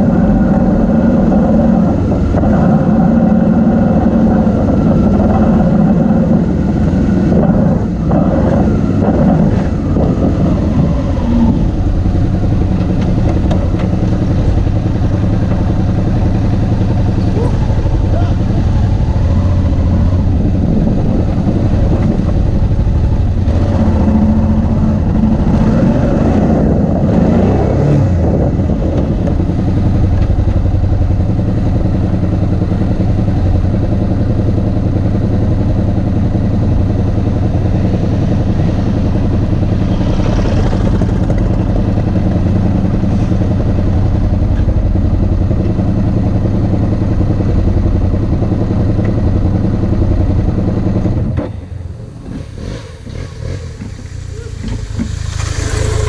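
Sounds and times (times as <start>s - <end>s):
motorcycle engine idling: 8.9s - 25.4s, 29.0s - 52.2s, 53.6s - 56.0s
motorcycles riding past: 36.7s - 45.6s, 51.7s - 56.0s.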